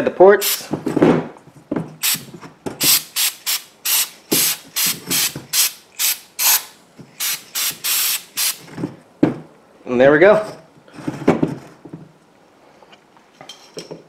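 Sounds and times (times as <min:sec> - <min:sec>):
aerosol spray hisses: 0:07.2 - 0:08.6.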